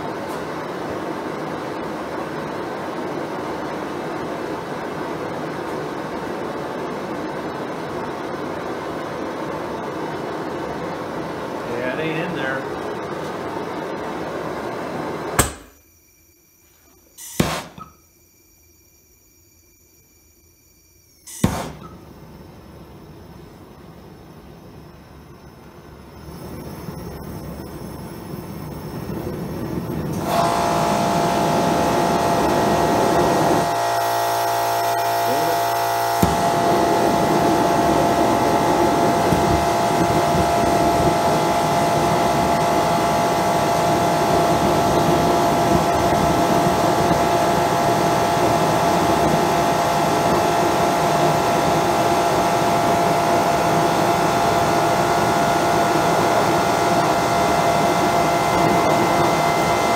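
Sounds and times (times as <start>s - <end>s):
burner roaring with whistling tone: 18.1s - 59.9s.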